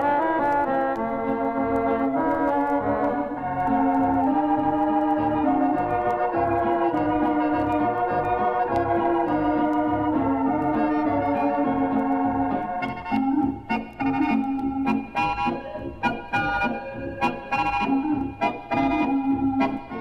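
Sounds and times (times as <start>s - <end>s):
organ-like keyboard tune: 0.0s - 20.0s.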